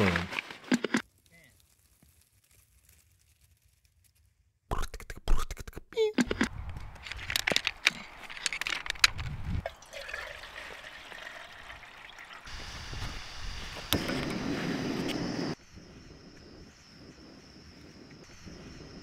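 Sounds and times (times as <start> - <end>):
water pouring into metal pot: 9.6 - 12.7
gas hissing: 12.5 - 15.6.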